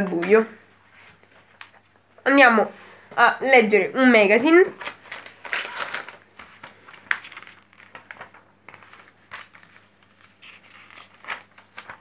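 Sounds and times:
magazine pages turning: 0.0s - 2.0s, 4.7s - 12.0s
foil packet crinkling: 4.7s - 12.0s.

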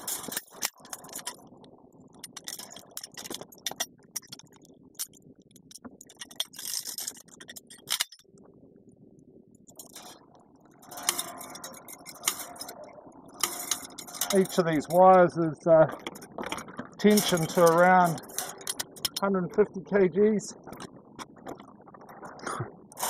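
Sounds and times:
light metallic clicks and clinks: 10.8s - 19.3s.

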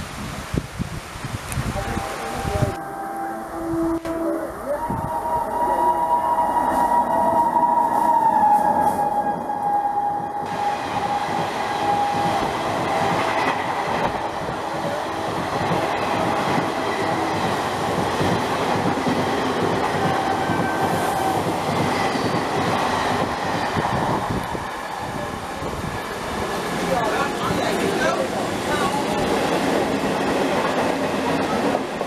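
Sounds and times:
train horn: 1.8s - 17.5s, 19.8s - 21.6s.

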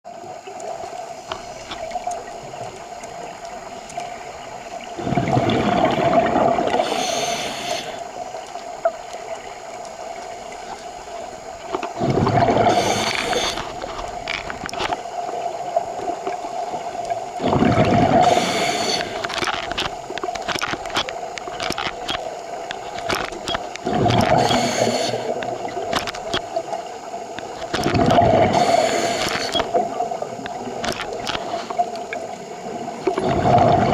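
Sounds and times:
small clicks: 0.2s - 4.9s, 12.6s - 17.2s, 18.2s - 32.4s
regulator exhale bubbling: 5.0s - 8.1s, 11.9s - 14.9s, 17.4s - 21.0s, 22.8s - 26.4s, 27.5s - 30.2s, 33.1s - 33.9s.

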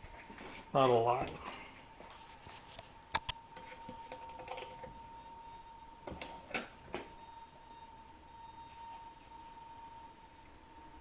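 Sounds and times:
faint steady whine: 0.0s - 11.0s.

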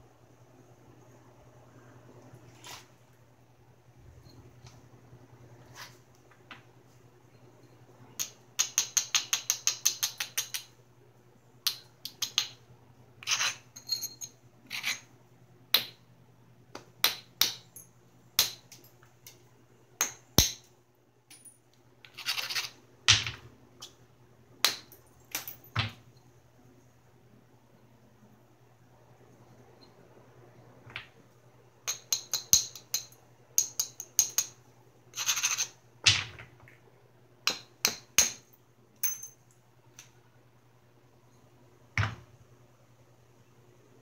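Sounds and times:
tool scraping flint: 13.2s - 13.6s, 14.7s - 15.1s, 22.0s - 22.8s.

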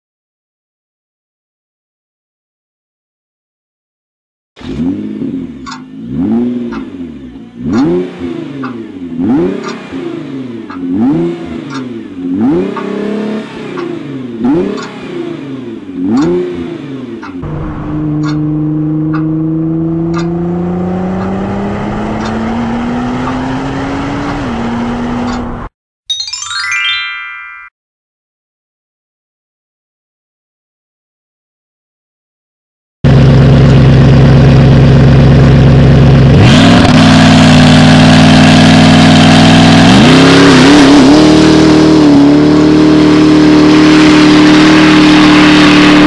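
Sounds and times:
car engine revving: 4.6s - 25.7s, 33.1s - 46.0s
short rising chime: 26.1s - 27.7s.

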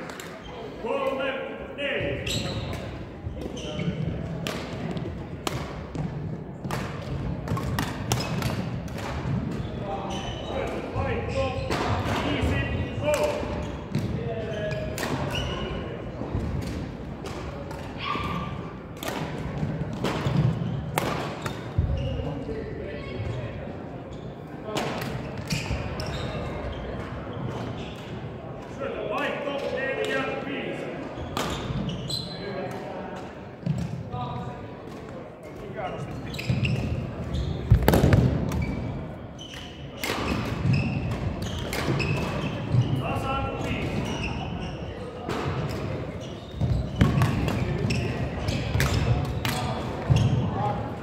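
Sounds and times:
shoes squeaking on court: 2.1s - 4.3s, 7.6s - 12.7s, 25.1s - 28.2s, 31.1s - 32.7s, 35.8s - 50.7s
racket hitting shuttlecock: 4.4s - 9.6s, 19.0s - 21.7s.

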